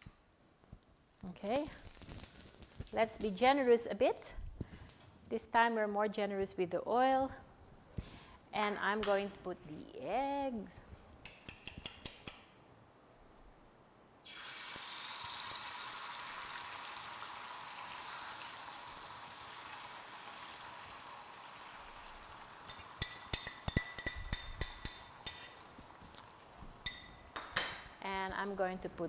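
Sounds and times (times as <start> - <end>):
egg sizzling on griddle: 1.0 - 5.3, 14.2 - 28.5
fork clinking against bowl: 22.7 - 25.6
fork scraping bowl: 22.7 - 25.7.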